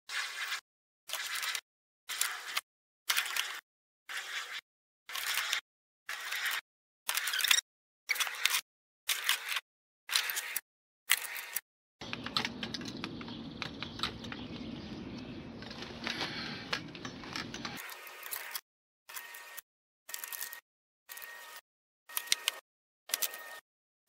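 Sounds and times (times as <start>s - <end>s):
low hum: 12.0s - 17.8s
bicycle metal parts clattering: 15.4s - 17.8s.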